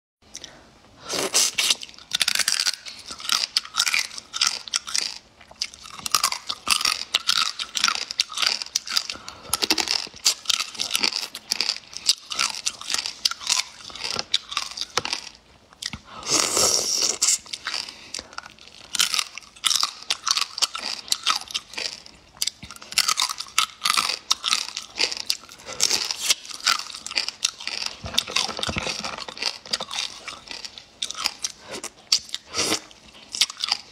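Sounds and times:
person crunching and chewing: 0.3 - 33.9.

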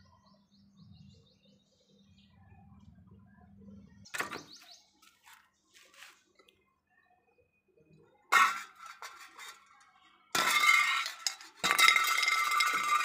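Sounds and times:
metal cans rolling on concrete: 8.3 - 13.0.

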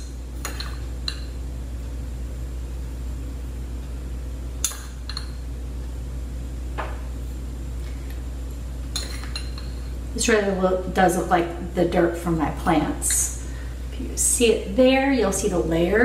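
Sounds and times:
metal spoon clinking on glass: 0.0 - 1.3, 8.9 - 9.9
low room hum: 0.0 - 16.0.

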